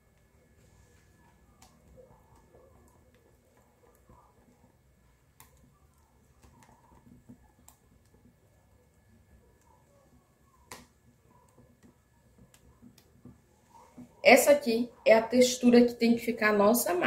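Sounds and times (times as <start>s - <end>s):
whisking batter squelching: 0.0s - 15.2s.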